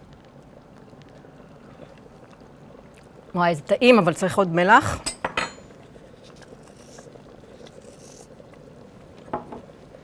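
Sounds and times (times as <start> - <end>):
salt sprinkling into soup: 6.2 - 8.4
bowl knocking on wooden counter: 9.3 - 9.6.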